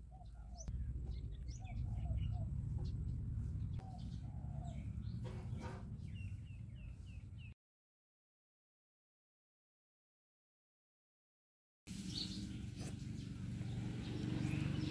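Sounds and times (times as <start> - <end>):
birds chirping: 0.0 - 7.6, 11.9 - 14.9
steady low rumble: 0.0 - 7.6.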